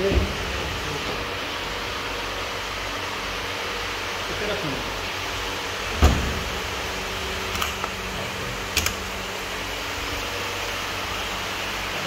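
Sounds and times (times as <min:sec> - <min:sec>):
machine hum: 0:00.0 - 0:12.0
metallic latch clicks: 0:08.7 - 0:09.1.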